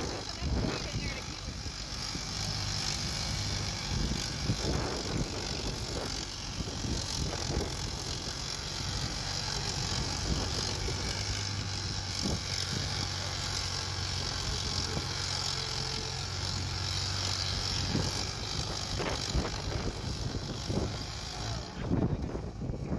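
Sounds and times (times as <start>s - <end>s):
tractor engine under heavy load: 0.0s - 22.9s.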